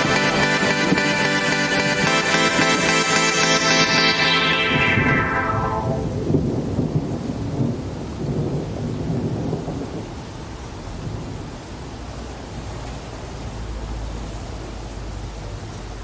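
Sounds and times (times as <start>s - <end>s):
steady rain: 6.0s - 16.0s
rumbling thunder: 6.1s - 10.3s.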